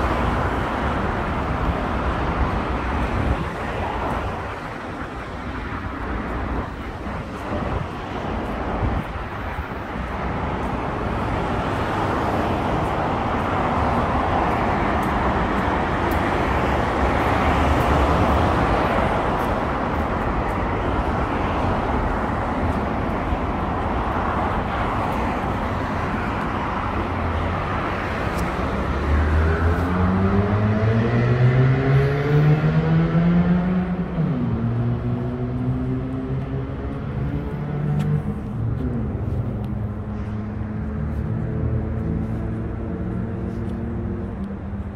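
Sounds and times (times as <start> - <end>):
road traffic passing: 0.0 - 44.9
vehicle engine accelerating: 29.0 - 44.9.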